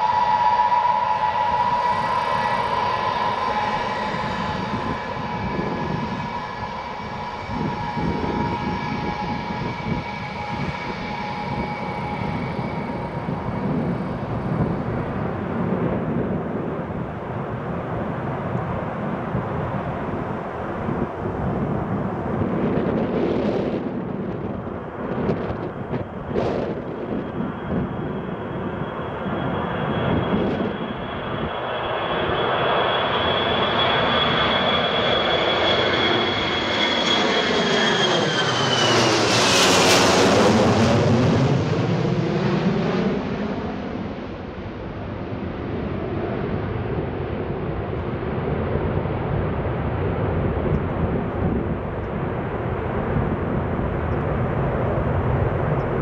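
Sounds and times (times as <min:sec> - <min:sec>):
jet fan whine: 0:00.0 - 0:44.7
jet rumble: 0:00.0 - 0:56.0.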